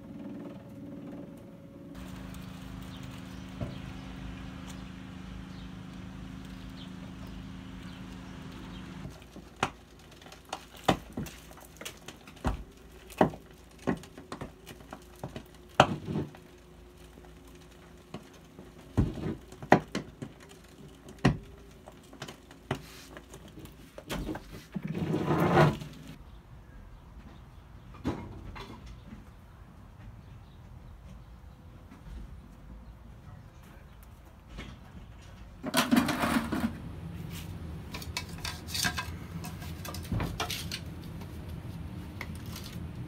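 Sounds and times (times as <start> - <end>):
iron pipe cracking and crunching: 1.9 - 24.4, 37.8 - 41.3, 42.1 - 43.0.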